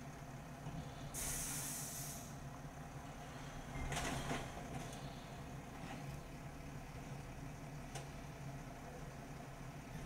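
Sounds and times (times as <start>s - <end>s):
diesel truck engine idling: 0.0s - 10.0s
air brake hissing: 0.8s - 2.4s.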